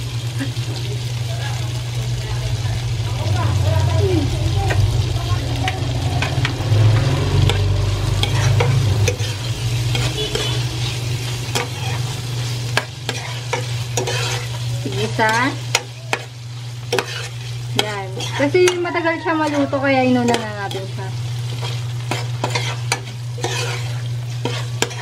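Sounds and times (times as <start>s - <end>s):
tofu sizzling in hot fat: 0.0s - 25.0s
spatula scraping and tapping pot: 7.4s - 10.6s, 12.7s - 16.3s, 16.9s - 20.9s, 21.6s - 25.0s.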